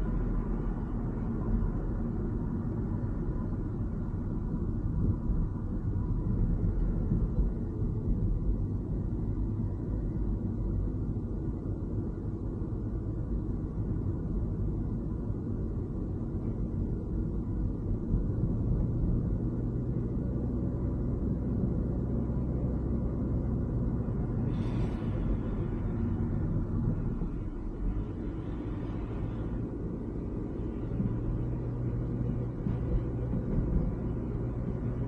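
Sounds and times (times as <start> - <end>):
car driving on wet road: 0.0 - 35.0
brief hiss: 24.4 - 25.4.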